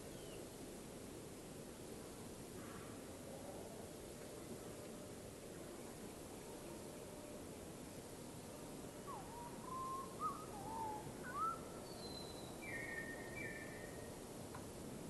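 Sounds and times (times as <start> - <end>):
birds whistling: 9.1 - 14.0.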